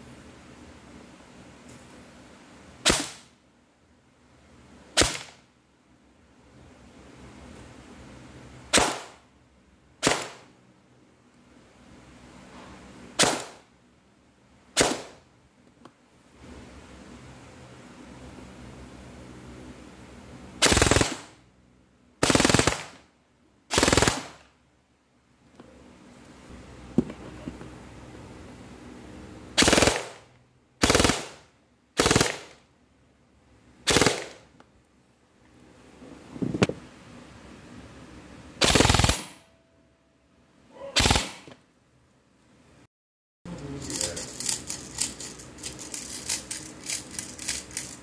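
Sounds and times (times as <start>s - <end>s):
airsoft gun full-auto bursts: 20.6s - 21.4s, 22.2s - 23.1s, 23.7s - 24.5s, 29.6s - 32.6s, 33.8s - 34.5s, 38.6s - 39.4s, 41.0s - 41.5s.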